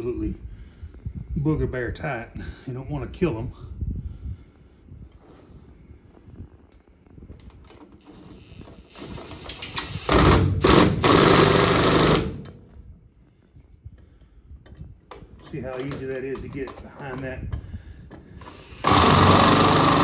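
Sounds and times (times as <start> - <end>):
impact driver whine: 7.8 - 12.6, 18.4 - 20.0
impact driver rapid hammering: 8.9 - 12.4, 18.4 - 20.0.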